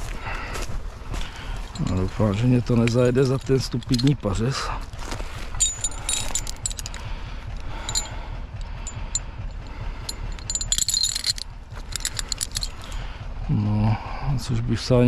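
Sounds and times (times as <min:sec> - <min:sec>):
tractor diesel engine rumbling: 0:00.0 - 0:15.0
metallic clinking and jangling: 0:01.4 - 0:13.2.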